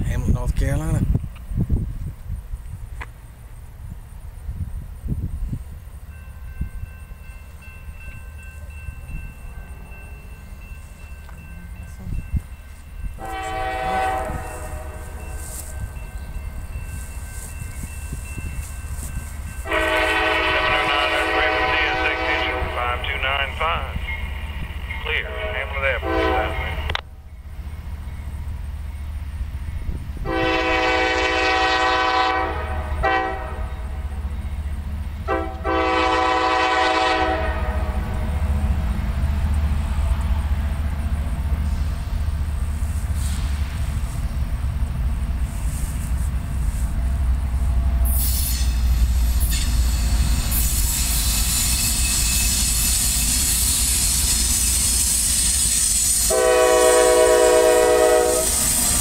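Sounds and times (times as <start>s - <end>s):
locomotive air horn blasts: 13.2s - 15.8s, 19.6s - 23.1s, 25.2s - 26.8s, 30.2s - 33.7s, 35.2s - 38.1s, 56.2s - 59.0s
train wheels clattering: 39.5s - 59.0s.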